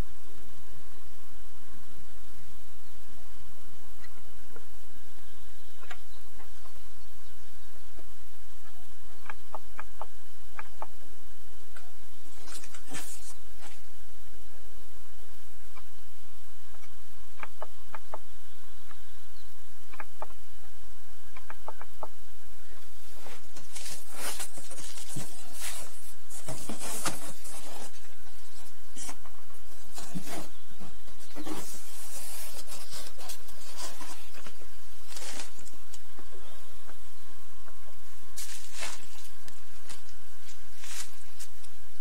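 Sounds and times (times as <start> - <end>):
steady low hum: 0.0 - 42.0
plastic and cardboard rustling: 23.2 - 35.7, 38.4 - 40.0.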